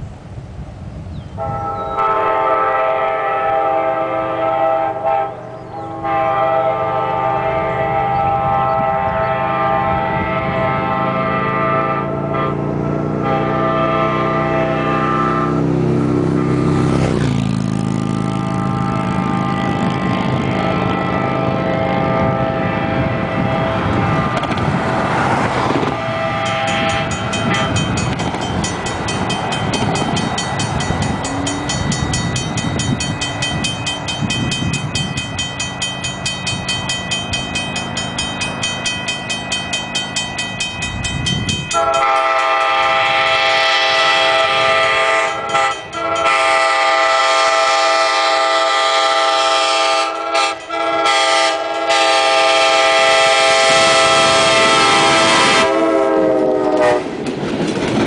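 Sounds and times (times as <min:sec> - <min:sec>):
train air horn: 0:01.4 - 0:15.7, 0:18.2 - 0:28.0, 0:31.0 - 0:32.2, 0:41.6 - 0:57.2
crossing warning bell ringing: 0:17.2 - 0:56.0.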